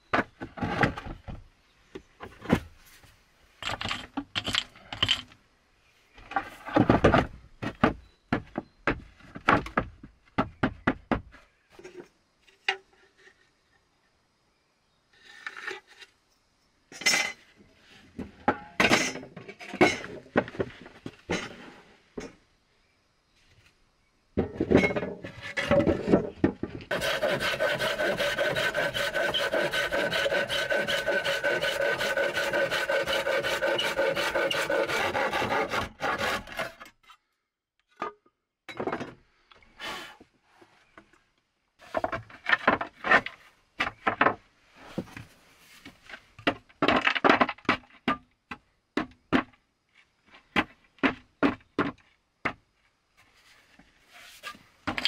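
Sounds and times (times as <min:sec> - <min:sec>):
scraping through wood: 0:24.4 - 0:37.3, 0:53.2 - 0:55.0
rubbing strokes on board: 0:26.9 - 0:36.4.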